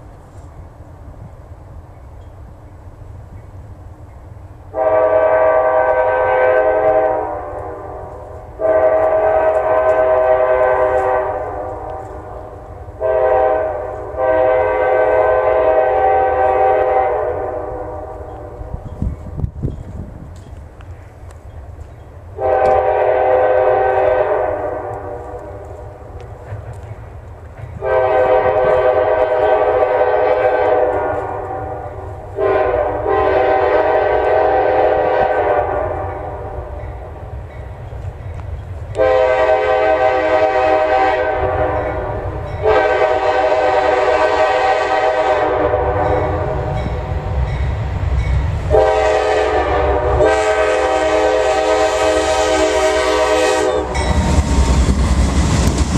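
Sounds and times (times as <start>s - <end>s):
locomotive engine rumble: 0.0s - 55.9s
train horn blasts: 4.7s - 18.9s, 22.4s - 26.0s, 27.8s - 37.1s, 38.9s - 47.7s, 48.6s - 54.3s.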